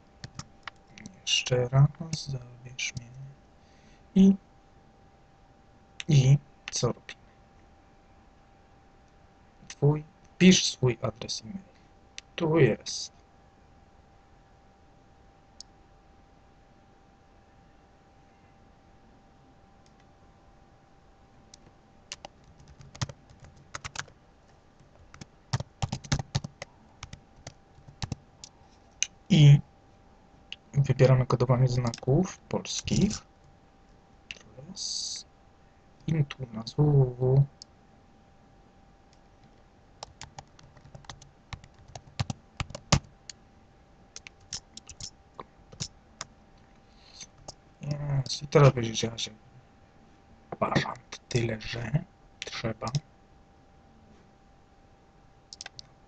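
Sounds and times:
faint steady hum: 0:00.0 - 0:56.0
computer keyboard typing: 0:00.2 - 0:01.1, 0:22.1 - 0:24.2, 0:24.8 - 0:28.2, 0:31.8 - 0:32.1, 0:32.8 - 0:33.2, 0:40.0 - 0:43.1, 0:44.2 - 0:45.1, 0:55.5 - 0:55.9.

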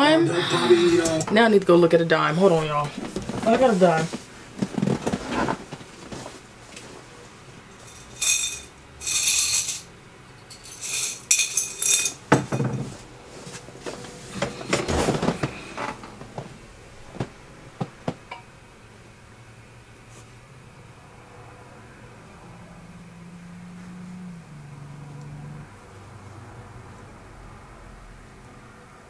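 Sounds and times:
metal objects clinking: 0:07.7 - 0:13.0
handling knocks: 0:10.6 - 0:18.4.

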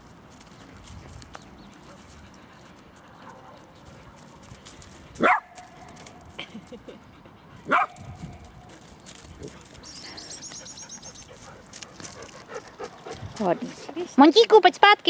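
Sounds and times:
dog barking: 0:05.2 - 0:05.6, 0:07.7 - 0:08.0.

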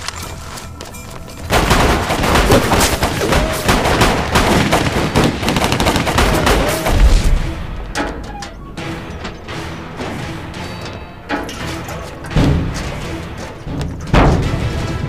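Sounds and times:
heavy gunfire: 0:01.5 - 0:07.8.

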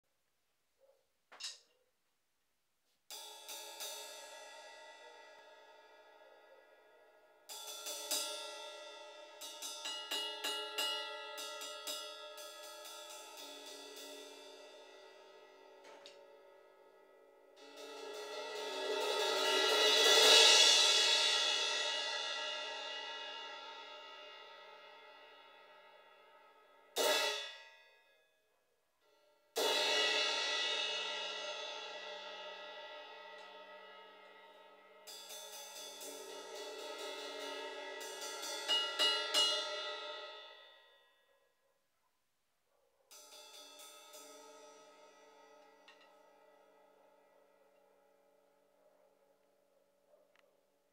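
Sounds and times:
crash cymbal struck: 0:17.6 - 0:24.8.

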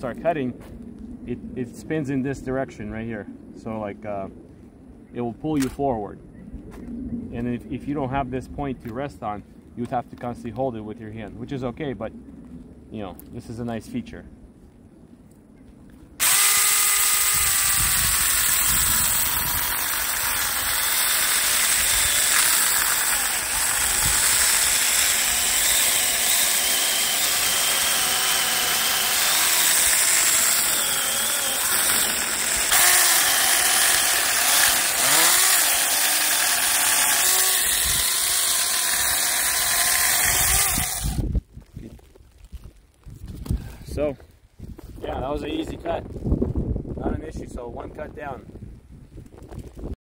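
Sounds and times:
electric chainsaw cutting wood: 0:16.2 - 0:41.3.

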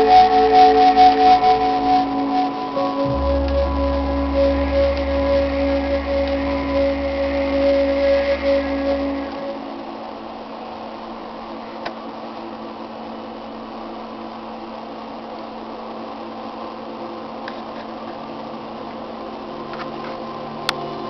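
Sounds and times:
embroidery machine humming: 0:00.0 - 0:11.2.

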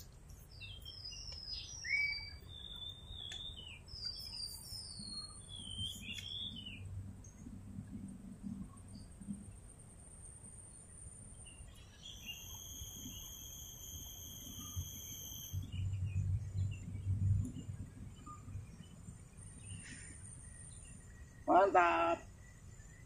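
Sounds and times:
high whistling call: 0:01.5 - 0:02.8, 0:12.1 - 0:15.7
insects trilling: 0:10.0 - 0:15.8
low rumbling noise: 0:15.6 - 0:21.5.

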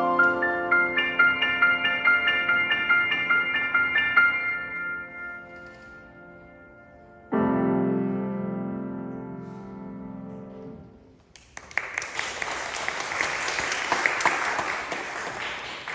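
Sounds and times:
grand piano chord ringing: 0:00.0 - 0:10.9
audience applause: 0:11.4 - 0:15.9.

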